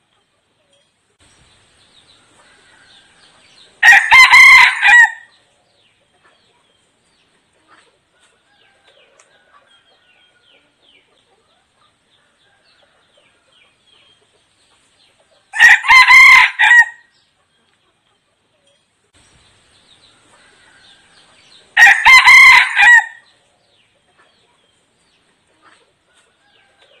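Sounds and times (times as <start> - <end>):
rooster crowing: 2.4 - 5.3, 15.5 - 17.1, 20.4 - 23.3.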